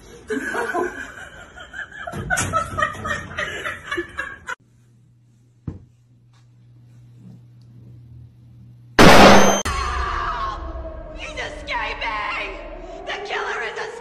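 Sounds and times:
people laughing and snickering: 0.0s - 4.6s.

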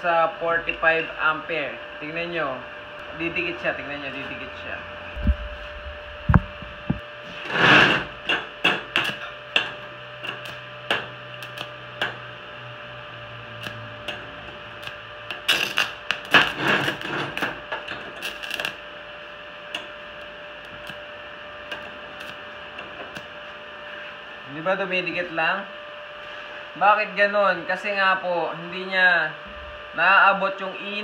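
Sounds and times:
welding arc crackling and popping: 5.2s - 24.0s.

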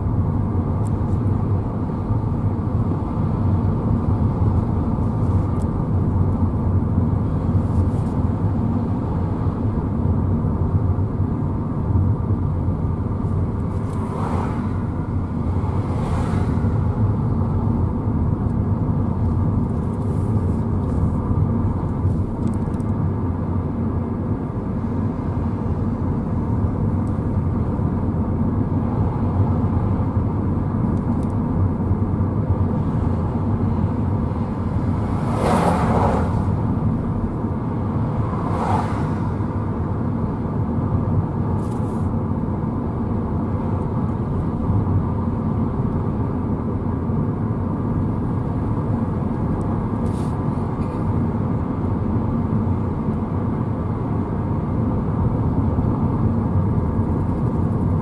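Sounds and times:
car engine and tyre rumble: 0.0s - 58.0s
short hissing noises: 50.0s - 50.4s.

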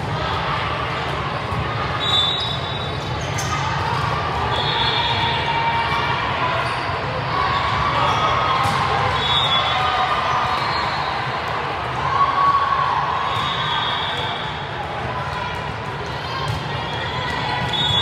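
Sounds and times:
echoing din of distant voices: 0.0s - 9.1s.

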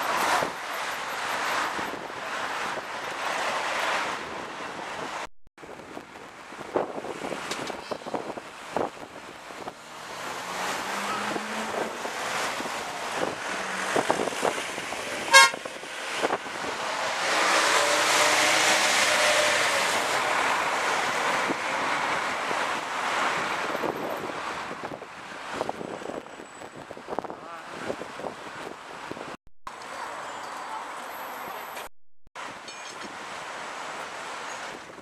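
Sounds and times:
street traffic: 0.0s - 35.0s
short horn toot: 15.3s - 15.6s.

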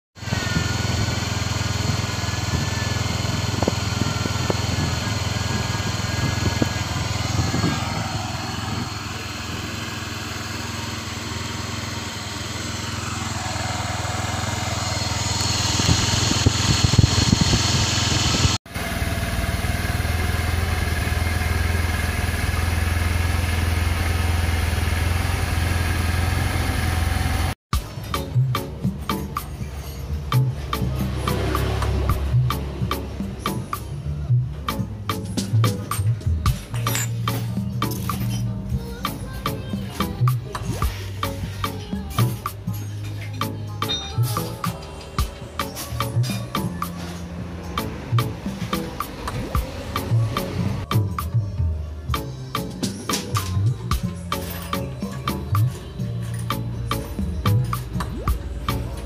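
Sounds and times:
scooter engine running: 0.2s - 29.0s, 30.2s - 33.7s.

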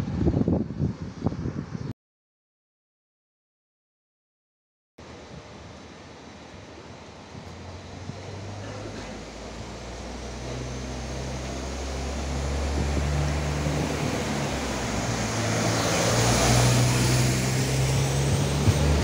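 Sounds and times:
diesel engine hum: 5.0s - 19.0s
wheel-on-rail noise: 5.1s - 19.0s.

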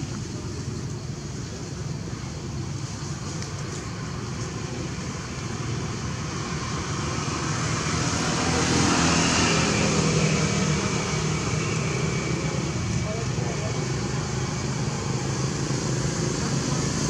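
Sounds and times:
vehicle engine passing by: 6.1s - 17.0s.

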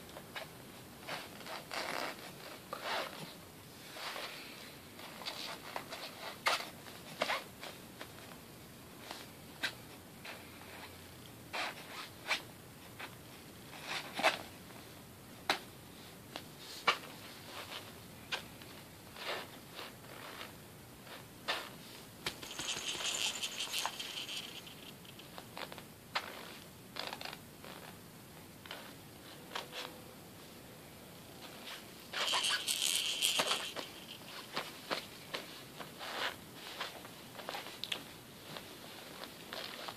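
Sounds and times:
long hissing rustle: 22.4s - 25.0s.

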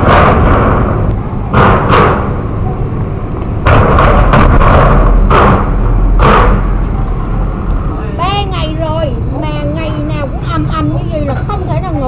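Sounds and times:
steel plates banging: 0.0s - 2.5s, 3.6s - 7.0s
traffic rumble: 0.0s - 12.0s.

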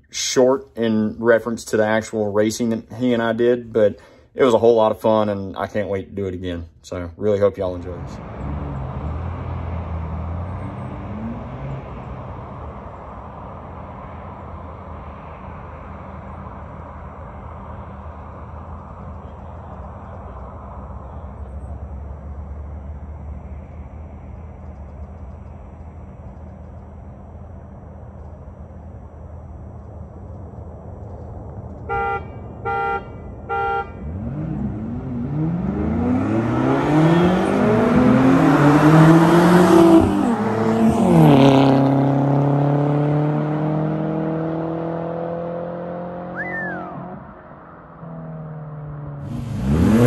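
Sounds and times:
cars accelerating hard: 7.7s - 27.2s, 30.8s - 50.0s
car horn beeps: 31.8s - 34.3s.

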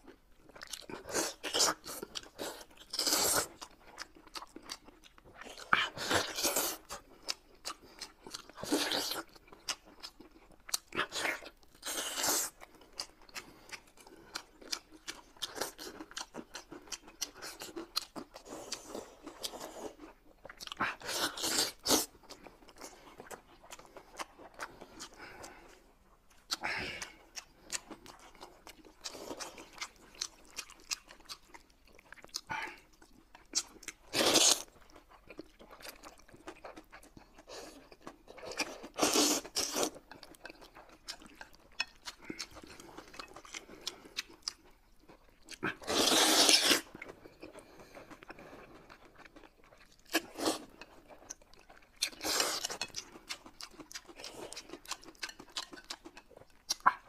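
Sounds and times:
chewing and mouth clicks: 0.0s - 57.0s
slurping noodles: 45.7s - 46.9s.

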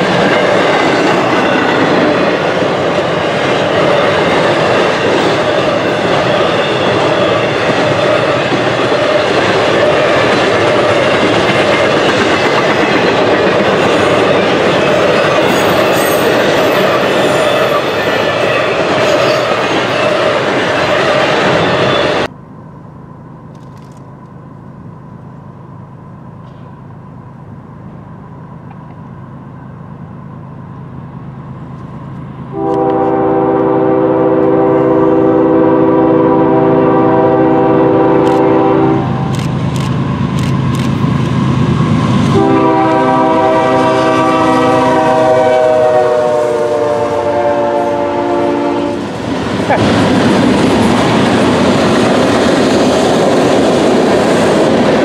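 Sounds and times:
freight train rumble: 0.0s - 55.0s
train passing by: 0.0s - 55.0s
locomotive air horn blasts: 32.5s - 39.3s, 42.3s - 49.0s.

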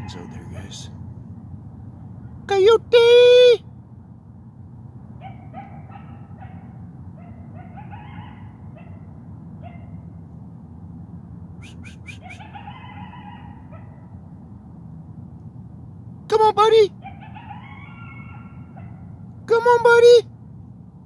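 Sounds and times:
coyotes yipping and howling: 0.0s - 0.9s, 5.2s - 10.2s, 11.6s - 14.1s, 17.0s - 19.3s.

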